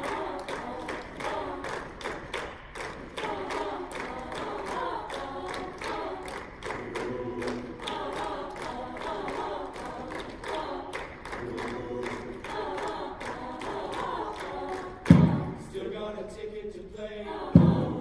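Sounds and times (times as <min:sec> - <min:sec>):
choir singing a cappella: 0:00.0 - 0:18.0
sharp percussive hits: 0:15.1 - 0:15.6.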